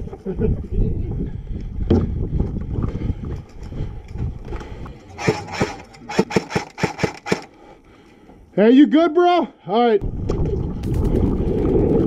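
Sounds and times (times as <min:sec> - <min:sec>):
airsoft rifle shots: 0:05.2 - 0:07.5.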